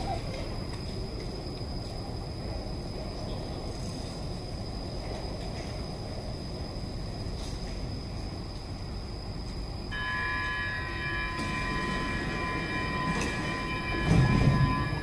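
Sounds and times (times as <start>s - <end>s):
metro train rumbling: 0.0s - 15.0s
high multi-tone whine: 9.5s - 15.0s.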